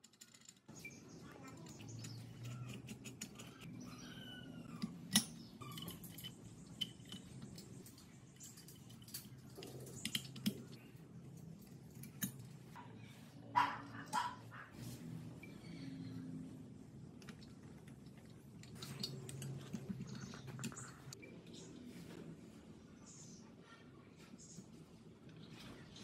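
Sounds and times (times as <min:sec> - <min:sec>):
faint squeaky chirps: 0:00.7 - 0:11.0, 0:12.8 - 0:16.6
metal clutch parts clinking: 0:05.1 - 0:10.6.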